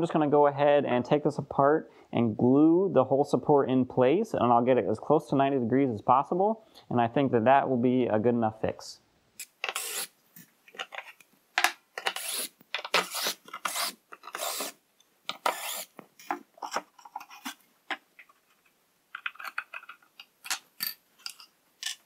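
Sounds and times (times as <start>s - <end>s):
scrapes and knocks of wood parts: 9.6s - 14.6s, 15.3s - 22.0s.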